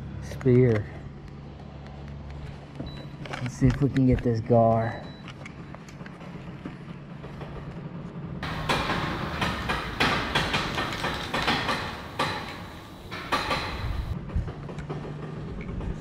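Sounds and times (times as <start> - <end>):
clattering knocks and rattles: 5.2 - 16.0.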